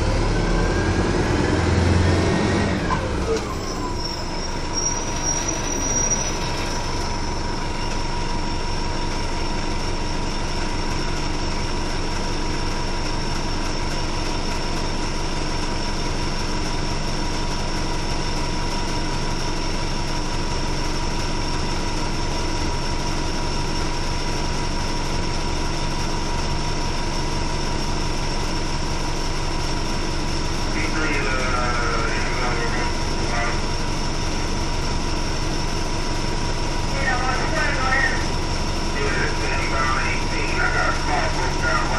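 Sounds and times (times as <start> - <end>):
bus engine idling: 0.0 - 41.9.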